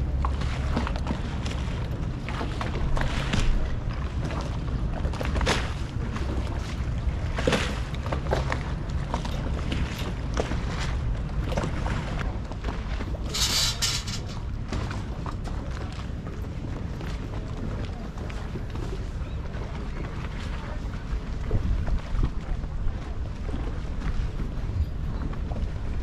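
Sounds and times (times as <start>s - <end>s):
water lapping against boats and stone: 0.0s - 26.0s
steady low rumble: 8.0s - 19.8s.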